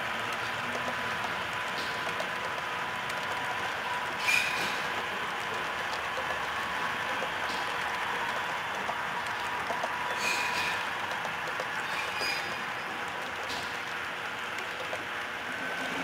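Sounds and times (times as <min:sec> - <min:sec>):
model train rolling rattle: 0:01.8 - 0:11.2
wheel squeaks: 0:04.2 - 0:05.0, 0:10.0 - 0:11.0, 0:11.7 - 0:13.7.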